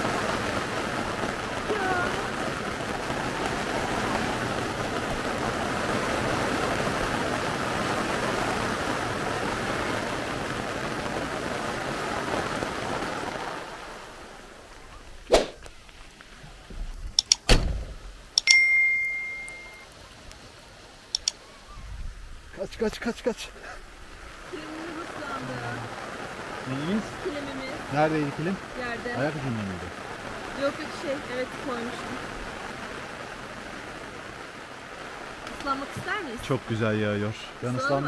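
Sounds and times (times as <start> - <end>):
rain falling: 0.0 - 38.0
short ringing ding: 18.4 - 19.8.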